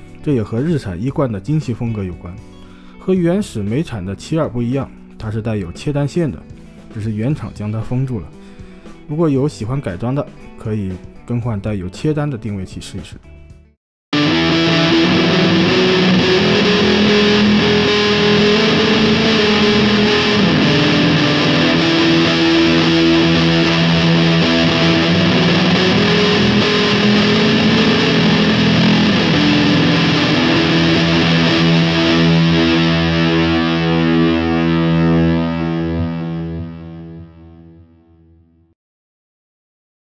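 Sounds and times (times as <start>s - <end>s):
overdriven electric guitar: 14.2s - 38.3s.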